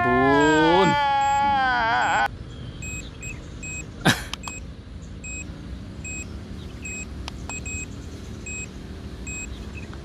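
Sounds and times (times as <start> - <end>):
high warning beeps: 0.4 - 1.5, 2.8 - 4.6, 5.2 - 8.7, 9.3 - 9.5.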